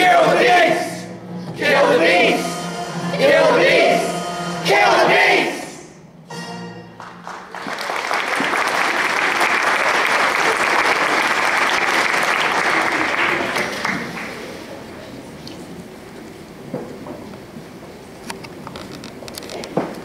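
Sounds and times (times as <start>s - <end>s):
audience applauding: 7.0s - 14.8s.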